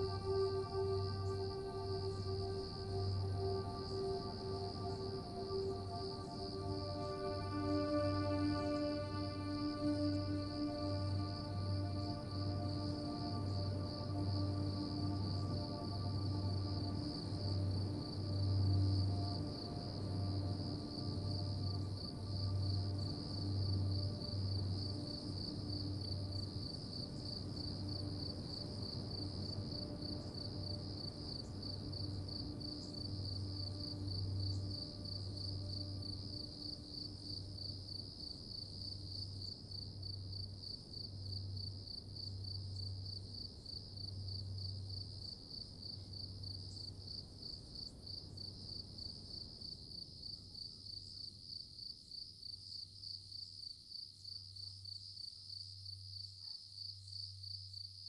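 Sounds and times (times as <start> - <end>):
pulsing low hum: 0.0 - 45.2
faint steady tones: 0.0 - 50.1
insects trilling: 0.0 - 58.0.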